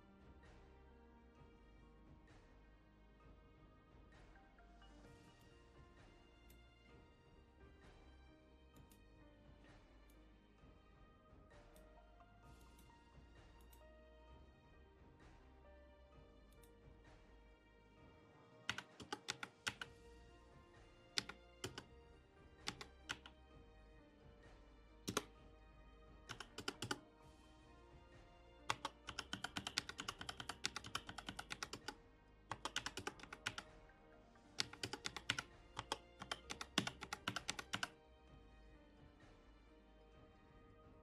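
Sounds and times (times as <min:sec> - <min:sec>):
soft background music: 0:00.0 - 0:41.0
keyboard typing: 0:18.7 - 0:19.9, 0:21.1 - 0:21.9, 0:22.6 - 0:23.4, 0:25.0 - 0:25.4, 0:26.2 - 0:27.1, 0:28.6 - 0:33.8, 0:34.6 - 0:38.0.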